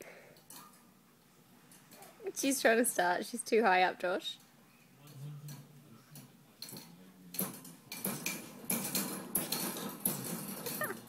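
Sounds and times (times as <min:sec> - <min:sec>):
baby bouncer rattling and clicking: 0:06.2 - 0:11.0.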